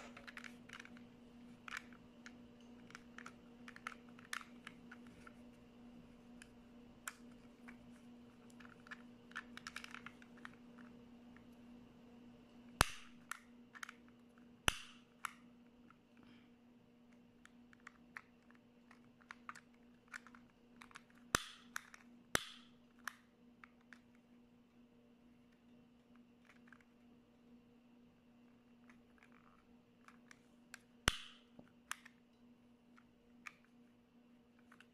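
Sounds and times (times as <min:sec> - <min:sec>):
steady low hum: 0:00.0 - 0:34.9
piezo igniter snaps: 0:12.7 - 0:13.4, 0:21.3 - 0:22.8, 0:31.0 - 0:32.1.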